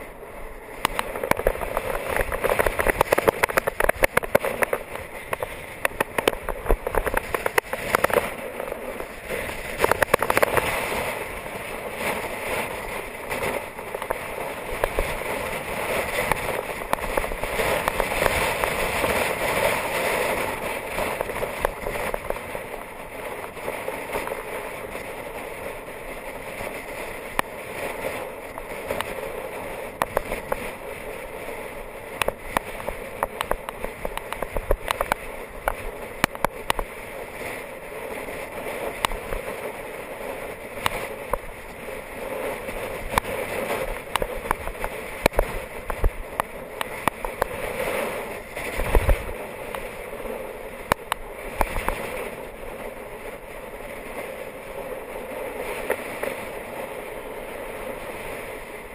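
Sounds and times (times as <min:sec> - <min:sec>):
wind buffeting microphone: 0:00.0 - 0:58.9
road rattles: 0:00.8 - 0:26.9.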